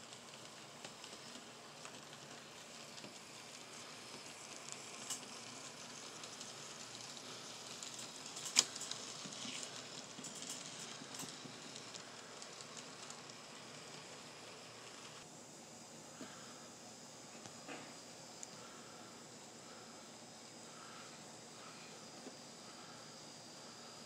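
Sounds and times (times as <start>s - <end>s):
model train wheels rolling on track: 0.0s - 15.8s.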